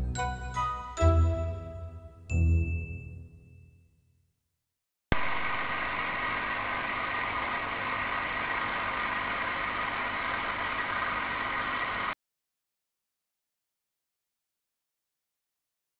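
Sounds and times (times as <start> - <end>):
steady mechanical motor noise: 5.2 - 12.2.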